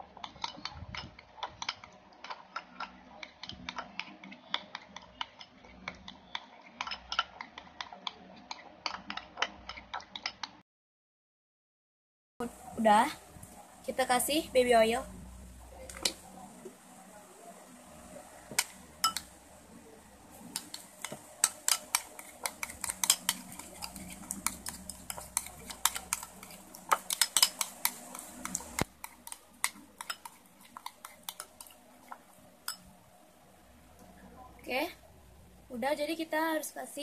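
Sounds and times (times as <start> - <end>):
metal spoon clinking glass bowl: 18.6 - 19.3, 20.6 - 31.8, 32.6 - 32.9.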